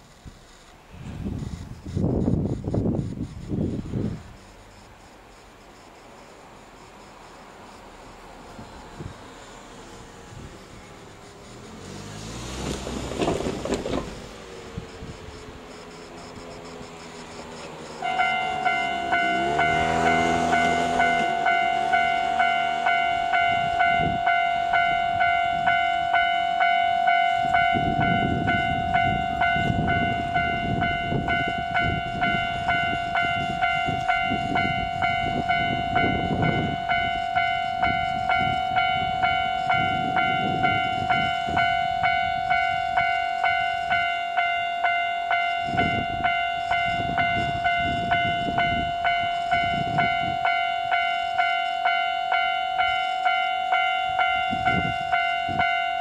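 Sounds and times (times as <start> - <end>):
train rumbling: 0.0 - 56.0
level crossing bell dinging: 18.0 - 56.0.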